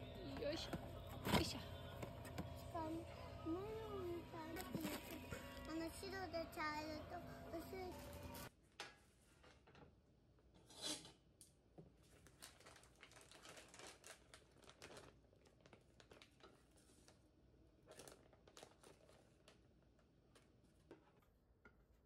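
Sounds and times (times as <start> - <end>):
plastic bag crinkling: 12.1 - 17.2, 17.8 - 20.8.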